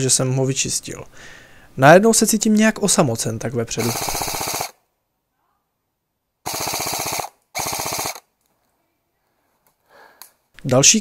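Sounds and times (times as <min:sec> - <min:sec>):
airsoft rifle bursts: 0:03.8 - 0:04.8, 0:06.5 - 0:08.3.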